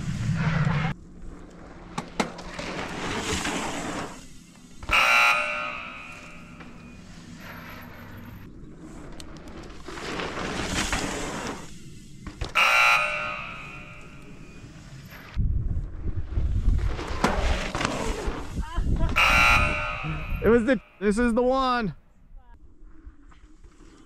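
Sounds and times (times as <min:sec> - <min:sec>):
bike tyres on dirt: 0:00.0 - 0:21.7, 0:22.6 - 0:24.0.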